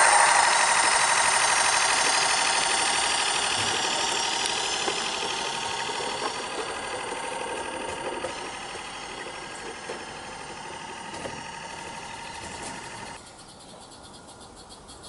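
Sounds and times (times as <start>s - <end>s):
steam hiss: 0.0s - 9.0s
steam locomotive exhaust beats: 0.0s - 13.2s.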